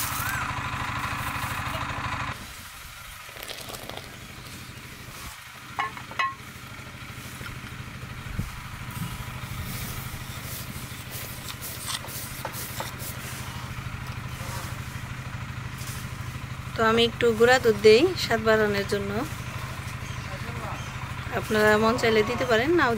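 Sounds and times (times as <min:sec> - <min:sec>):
low mechanical hum: 0:00.0 - 0:22.9
milk simmering: 0:03.1 - 0:04.8
ladle stirring and pouring: 0:03.2 - 0:04.3.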